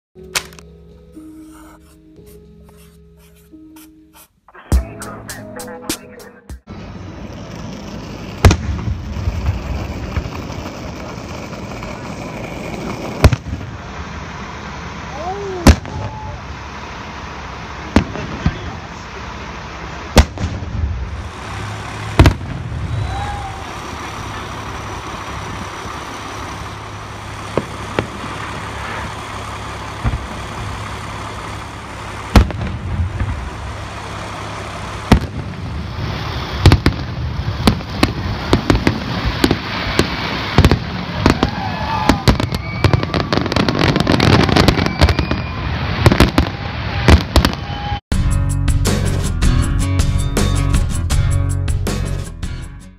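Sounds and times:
fireworks bangs and crackles: 6.6s - 48.0s.

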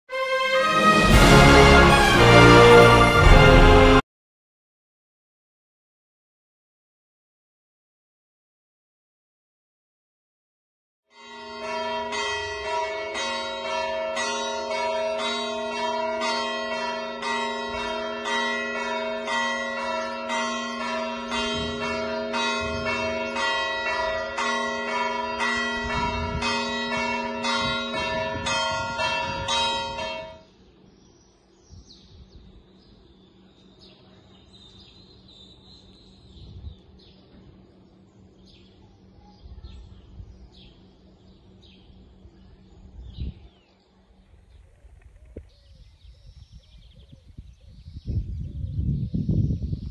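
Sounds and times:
church bells ringing: 0.1s - 4.0s, 11.1s - 30.5s
birds chirping quietly: 30.4s - 49.9s.

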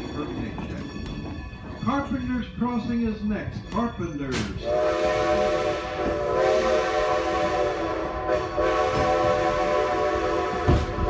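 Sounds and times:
train rumbling along: 0.0s - 11.0s
steam locomotive whistle: 4.6s - 11.0s.

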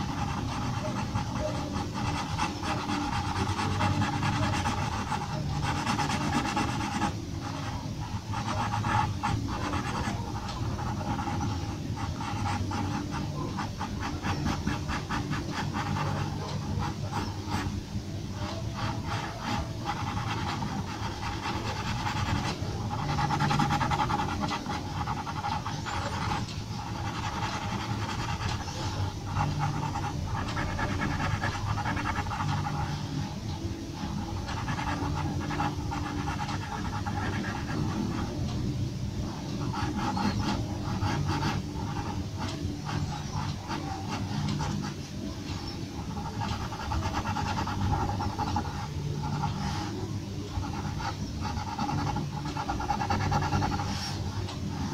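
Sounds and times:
pencil scratching on paper: 0.0s - 38.6s, 39.2s - 54.9s.

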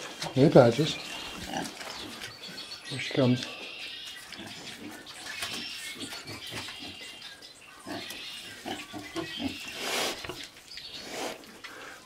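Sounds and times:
pigs grunting: 0.0s - 2.2s, 4.3s - 7.2s, 7.8s - 12.0s.

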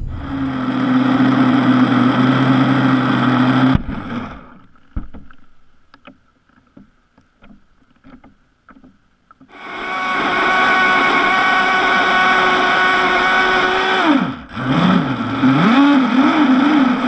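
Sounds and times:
electric motor running: 9.5s - 17.0s.

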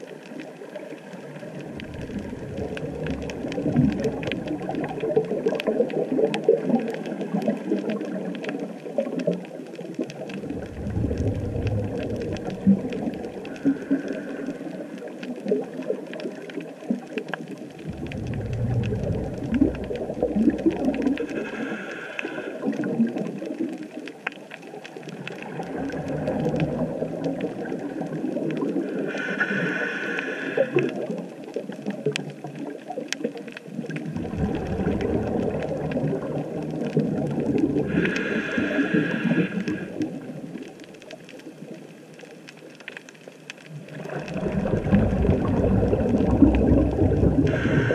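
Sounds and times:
crackle of fine clicks: 0.0s - 47.9s
bubbling rumbles: 1.1s - 21.4s, 22.6s - 24.0s, 24.7s - 29.0s, 33.6s - 38.2s, 43.7s - 47.9s
regulator breathing hiss: 21.3s - 22.7s, 29.0s - 30.9s, 37.9s - 40.2s, 47.5s - 47.9s.

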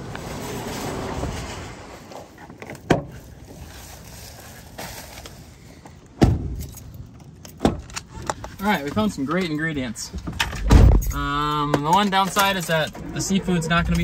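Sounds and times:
plastic bag rustling: 0.0s - 5.8s.

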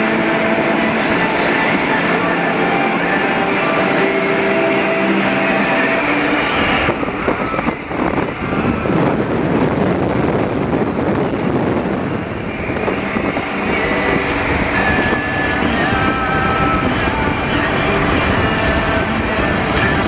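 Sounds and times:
road and wind noise in car: 0.0s - 20.0s.

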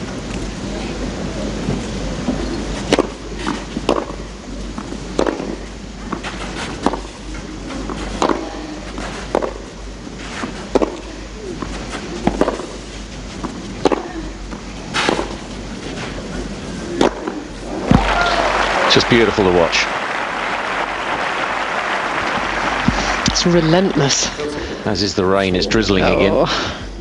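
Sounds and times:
tennis ball hit by racket: 2.9s - 4.2s, 5.2s - 5.6s, 6.2s - 7.1s, 7.9s - 9.6s, 10.7s - 12.8s, 13.4s - 14.1s, 14.9s - 15.4s, 17.0s - 18.2s.

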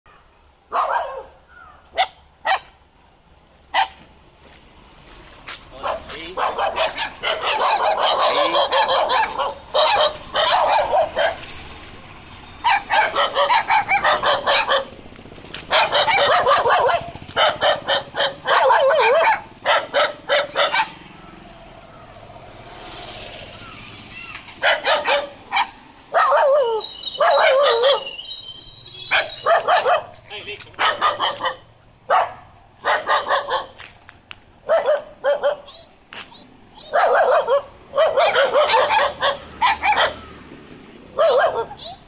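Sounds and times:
dogs barking: 0.7s - 2.8s, 3.7s - 4.0s, 5.8s - 11.5s, 12.6s - 15.0s, 15.6s - 21.4s, 24.6s - 28.2s, 29.0s - 30.2s, 30.8s - 33.9s, 34.6s - 35.8s, 36.8s - 40.3s, 41.1s - 42.0s.

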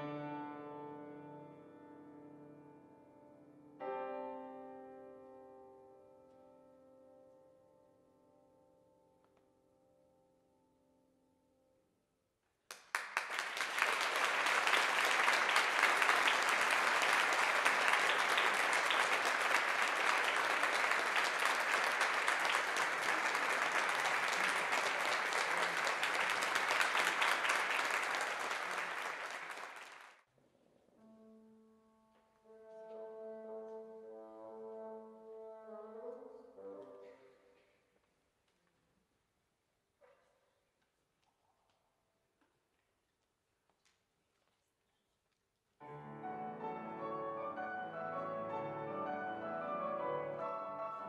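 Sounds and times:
audience applauding: 12.7s - 30.2s.

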